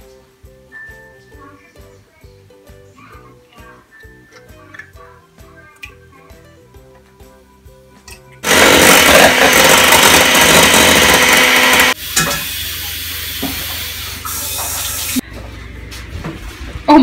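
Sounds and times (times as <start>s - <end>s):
faint music: 0.0s - 8.4s, 12.6s - 17.0s
electric hand mixer running: 8.4s - 14.2s.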